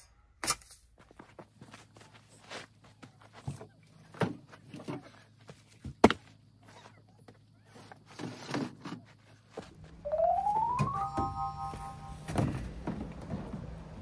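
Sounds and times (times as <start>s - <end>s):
rustling shuffle: 1.0s - 10.7s.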